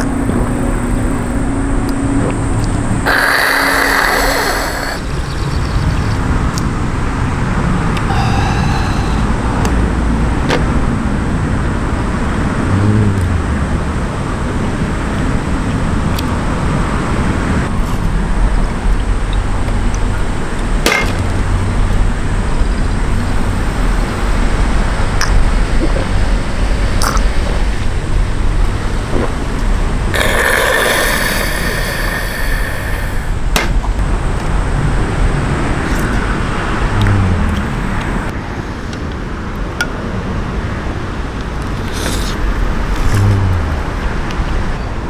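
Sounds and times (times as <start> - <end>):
road traffic rumble: 0.0 - 45.0
man breathing out harshly: 3.0 - 5.1, 8.0 - 9.9, 30.2 - 33.4.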